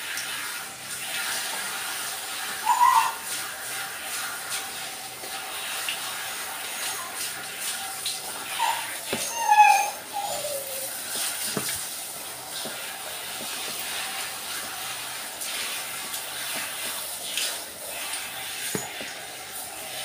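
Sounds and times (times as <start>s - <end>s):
shower water spraying: 0.0s - 20.0s
high-pitched dog cry: 2.6s - 3.4s, 8.4s - 11.2s.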